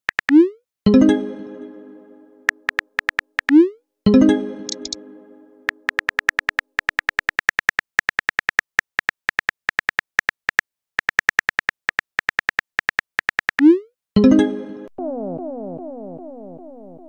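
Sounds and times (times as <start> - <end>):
phone keyboard typing clicks: 2.5 - 3.6, 4.7 - 5.0, 5.7 - 13.6.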